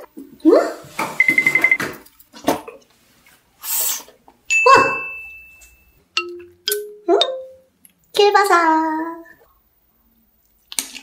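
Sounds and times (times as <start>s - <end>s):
bright ringing ding: 4.5s - 7.6s.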